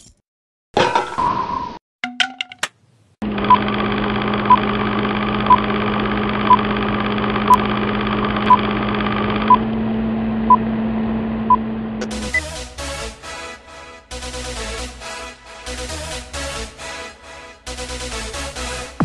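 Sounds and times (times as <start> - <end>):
film projector whirr: 3.2 - 12.1.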